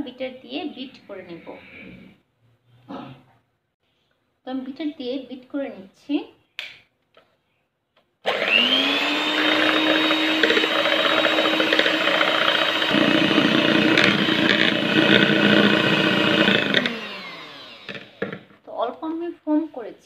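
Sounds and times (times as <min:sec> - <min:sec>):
electric hand mixer whining: 0:08.2 - 0:18.5.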